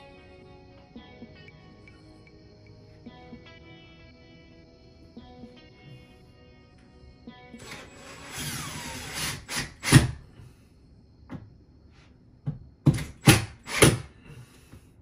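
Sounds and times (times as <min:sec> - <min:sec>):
background music: 0:00.0 - 0:10.0
sharp knocks and thumps: 0:11.2 - 0:11.6, 0:12.4 - 0:14.0.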